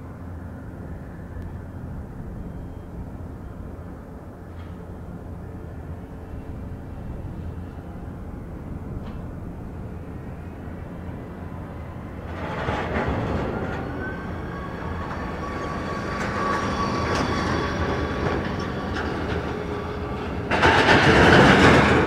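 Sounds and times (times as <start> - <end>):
thin whine: 0.0 - 22.0.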